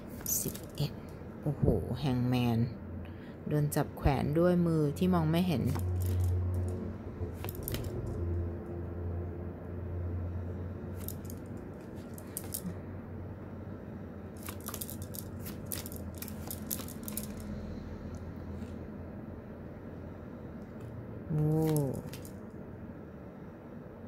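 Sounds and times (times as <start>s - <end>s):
steady low hum: 0.0s - 24.0s
cards flicking and rustling: 5.6s - 6.8s, 7.4s - 8.2s, 11.0s - 12.8s, 14.4s - 17.5s, 21.4s - 22.4s.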